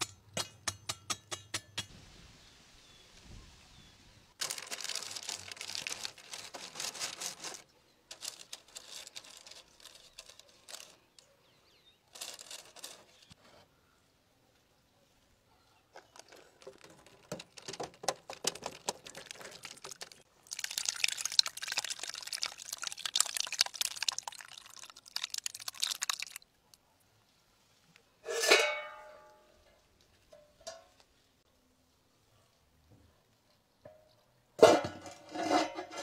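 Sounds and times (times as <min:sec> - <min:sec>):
batter pouring: 0:16.0 - 0:26.4.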